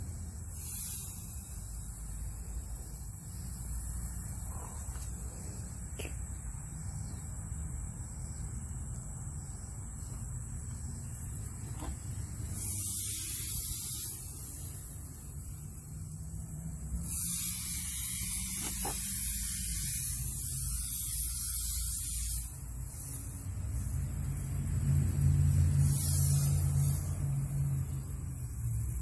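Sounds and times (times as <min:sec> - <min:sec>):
aerosol can spraying: 0:00.4 - 0:03.7, 0:11.4 - 0:16.4, 0:17.0 - 0:24.0, 0:25.7 - 0:27.2.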